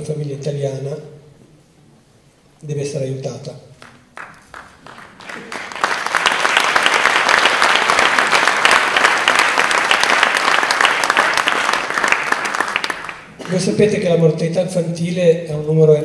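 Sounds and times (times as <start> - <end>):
audience applauding: 3.8 - 14.0.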